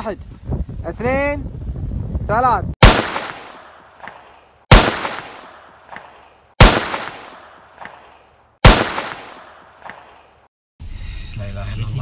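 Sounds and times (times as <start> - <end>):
gunshot blasts: 2.8 - 10.3.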